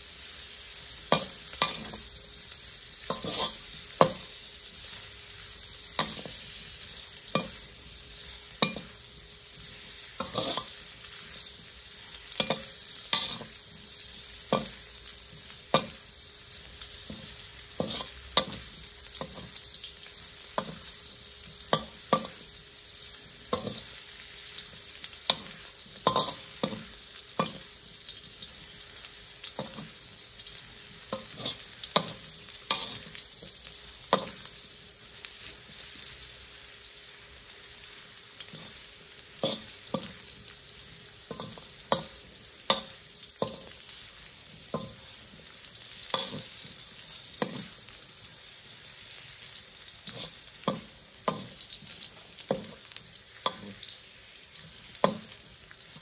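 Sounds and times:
sausage sizzling in a wok: 0.0s - 56.0s
metal spatula scraping a wok: 3.0s - 4.3s, 9.6s - 11.3s, 12.4s - 13.7s, 17.1s - 19.6s, 25.3s - 27.7s, 31.1s - 33.6s, 39.4s - 40.2s, 46.0s - 47.7s, 50.0s - 52.6s.

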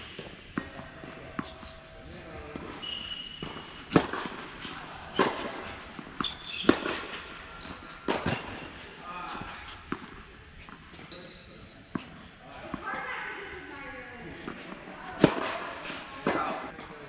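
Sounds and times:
tennis ball hit by racquet: 2.6s - 10.9s, 14.4s - 16.6s.

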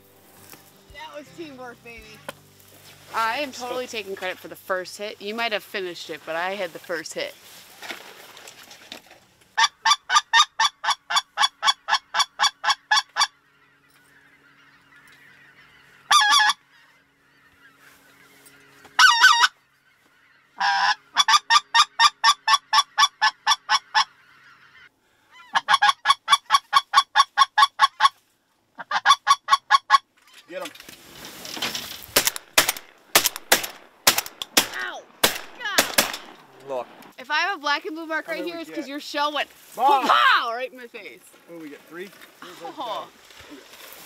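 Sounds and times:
distant flock calling: 0.0s - 7.6s, 9.5s - 30.7s, 32.1s - 44.0s
duck call notes: 9.6s - 28.2s, 28.8s - 30.6s.

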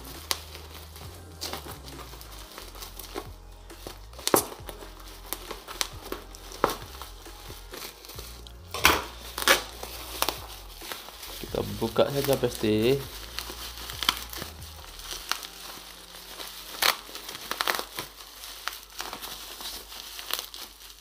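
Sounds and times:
scissors snipping plastic: 0.0s - 7.1s
plastic crinkling: 0.0s - 21.0s.

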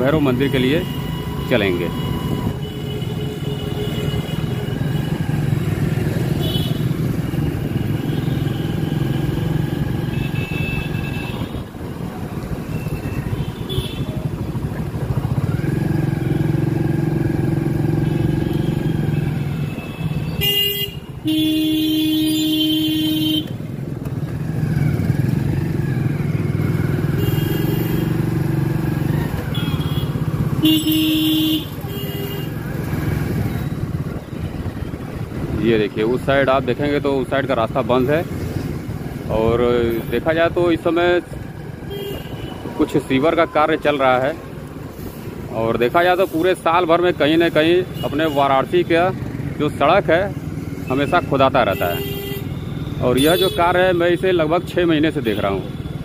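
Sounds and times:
vehicle horn: 6.4s - 6.9s, 19.8s - 23.6s, 27.2s - 28.2s, 29.5s - 32.6s, 41.9s - 42.7s, 51.7s - 53.7s.

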